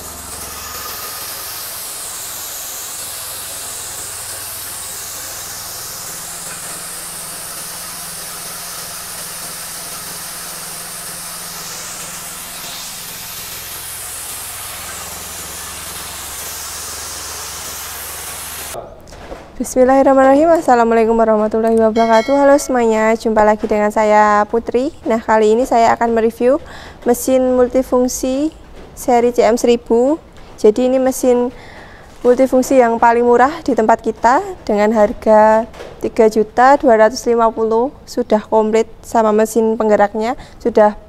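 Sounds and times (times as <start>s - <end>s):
grinder milling hiss: 0.0s - 18.8s
small petrol engine running: 0.0s - 18.8s.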